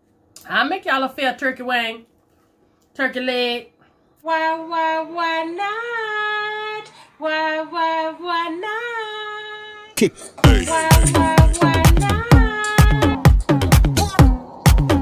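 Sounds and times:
woman singing: 0:04.2 - 0:15.0
dance beat with heavy kick drum: 0:10.4 - 0:15.0.

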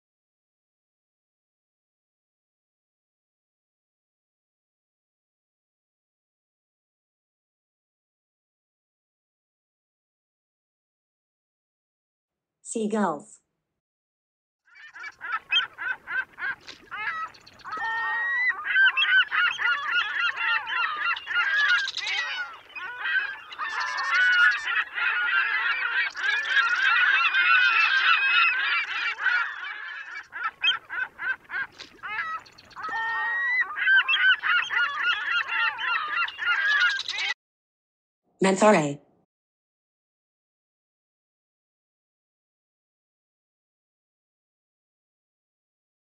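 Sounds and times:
gulls calling: 0:14.7 - 0:37.4.

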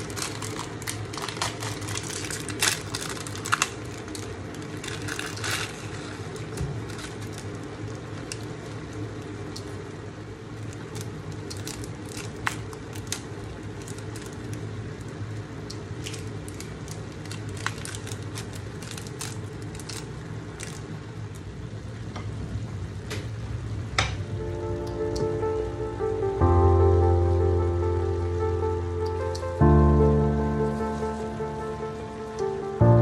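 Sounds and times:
steady low hum: 0:00.0 - 0:33.0
sharp pops and crackles: 0:10.6 - 0:21.5.

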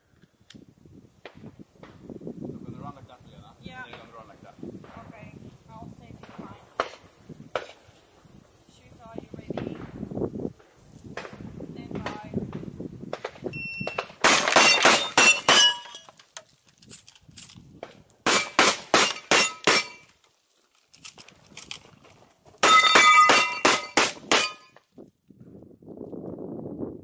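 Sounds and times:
shotgun shots: 0:14.0 - 0:15.4, 0:18.3 - 0:20.0
metallic ring of steel target: 0:18.3 - 0:20.0, 0:22.6 - 0:24.8.

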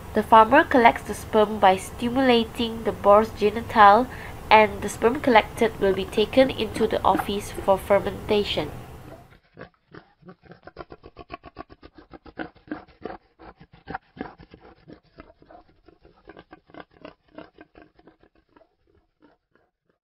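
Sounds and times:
boar grunting: 0:08.8 - 0:19.7.

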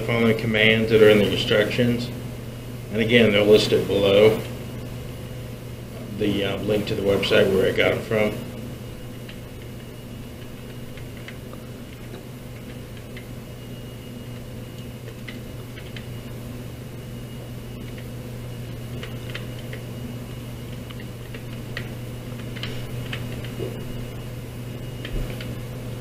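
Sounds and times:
steady low hum: 0:00.0 - 0:26.0
keyboard keys clicking: 0:14.8 - 0:16.1.

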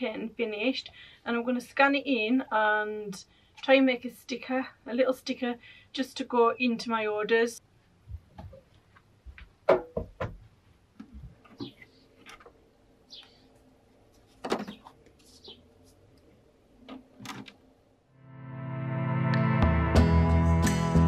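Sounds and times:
handling knocks and rustles: 0:14.0 - 0:15.6.

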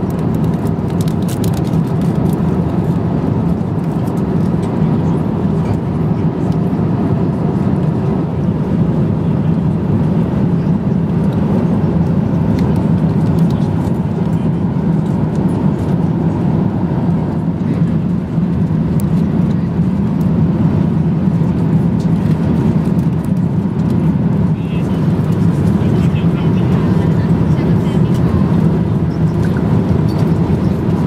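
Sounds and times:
airplane cabin drone: 0:00.0 - 0:31.0.

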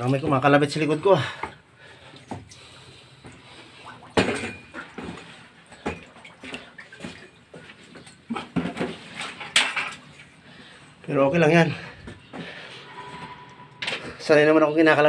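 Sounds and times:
knocks scrapes and clatter: 0:12.0 - 0:14.5.

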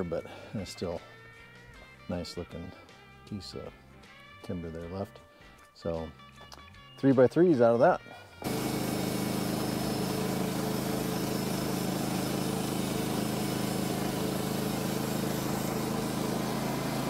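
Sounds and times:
saw cutting timber: 0:08.4 - 0:17.0
sawmill engine running: 0:08.4 - 0:17.0.

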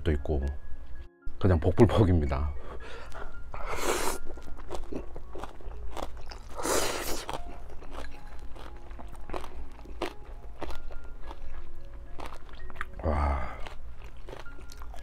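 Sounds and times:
wet chewing clicks: 0:04.1 - 0:15.0
noodles being slurped: 0:06.4 - 0:07.5.

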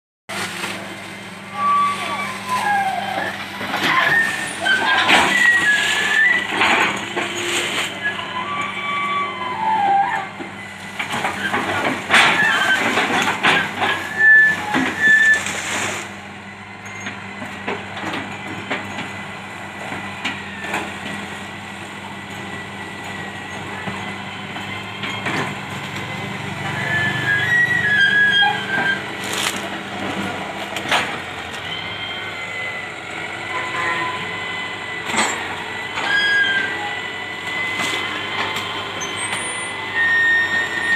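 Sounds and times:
excavator diesel engine running: 0:00.3 - 0:40.9.

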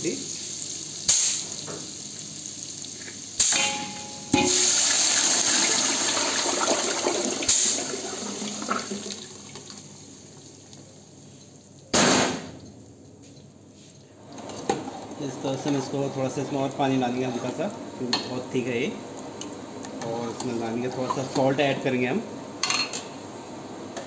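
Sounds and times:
paste sizzling in hot oil: 0:00.0 - 0:10.4
puree poured with sizzling splash: 0:00.0 - 0:11.9.

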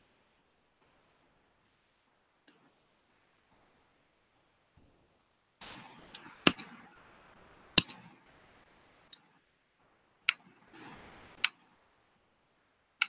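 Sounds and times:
computer mouse clicking: 0:06.0 - 0:06.8, 0:07.8 - 0:08.1, 0:10.3 - 0:11.6.

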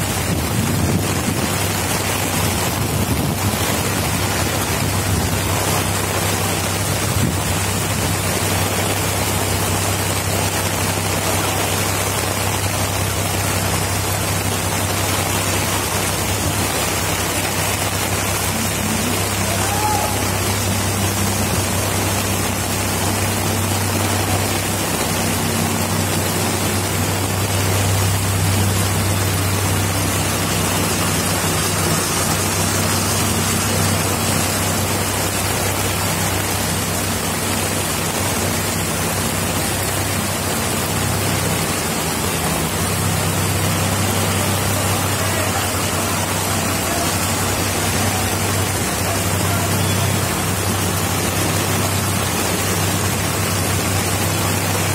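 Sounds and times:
heavy rain: 0:00.0 - 0:54.9
vehicle engine low hum: 0:00.0 - 0:54.9.

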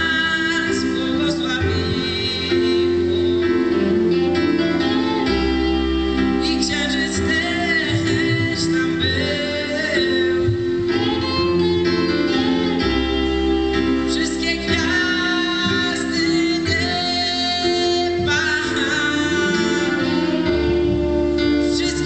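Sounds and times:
drums: 0:00.0 - 0:22.0
electric guitar: 0:00.0 - 0:22.0
keyboard: 0:00.0 - 0:22.0
man singing into a microphone: 0:00.0 - 0:22.0.

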